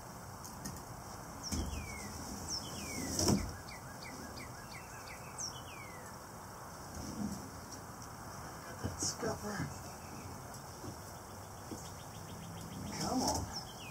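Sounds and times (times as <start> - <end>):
songbird whistling: 1.4 - 6.2.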